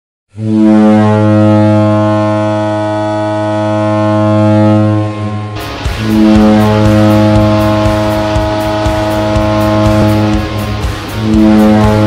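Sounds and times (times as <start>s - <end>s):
goal horn blast: 0.3s - 12.0s
song with driving beat: 5.6s - 12.0s.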